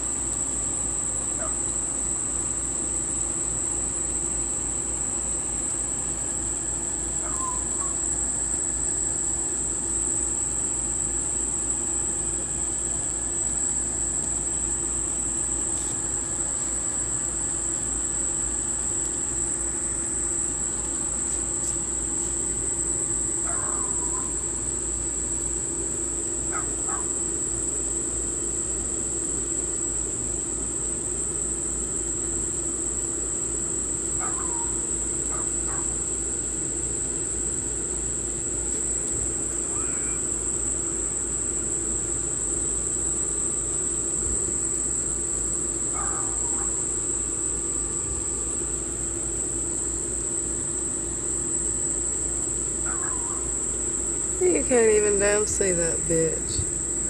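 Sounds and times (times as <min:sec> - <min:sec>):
insects droning: 0:00.0 - 0:57.0
low hum and rumble: 0:32.4 - 0:57.0.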